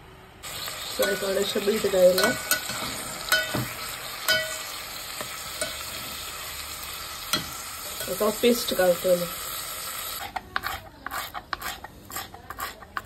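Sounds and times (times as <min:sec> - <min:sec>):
onions sizzling in oil: 0:00.4 - 0:12.8
spoon knocking metal pot: 0:02.1 - 0:04.6.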